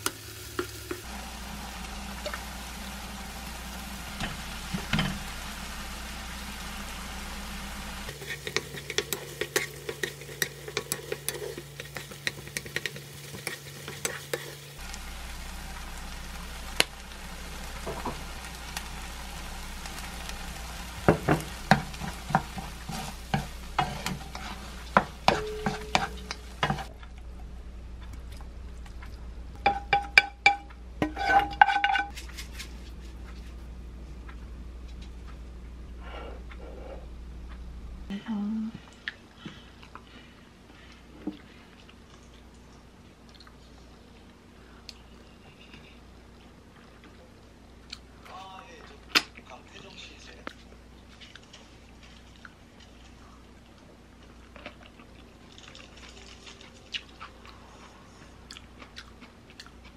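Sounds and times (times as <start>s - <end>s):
food sizzling: 0.0s - 27.0s, 29.5s - 32.8s, 54.4s - 57.8s
spatula scraping frying pan: 8.1s - 14.8s, 21.0s - 26.9s, 31.0s - 32.5s.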